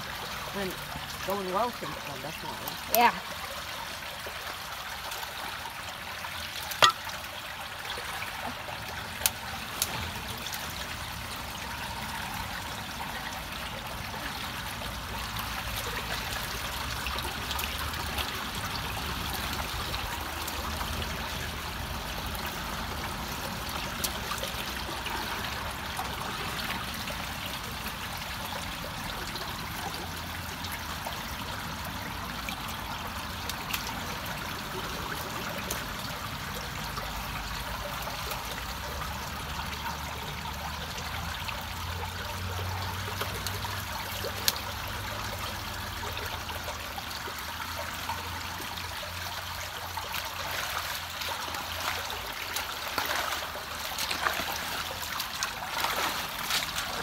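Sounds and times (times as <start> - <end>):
water rushing and trickling: 0.0 - 57.0.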